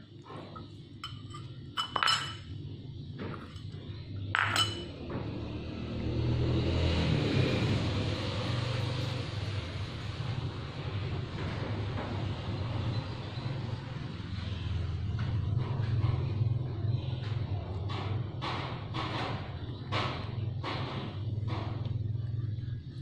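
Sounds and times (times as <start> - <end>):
spoon clinking on ceramic bowl: 1.0 - 2.5, 4.4 - 5.0.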